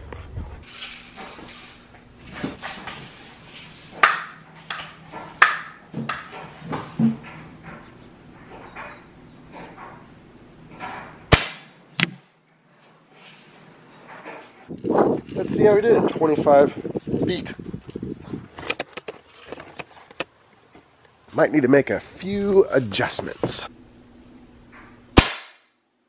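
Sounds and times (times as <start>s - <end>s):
pellet gun cracks: 11.3s - 12.2s, 25.2s - 25.8s.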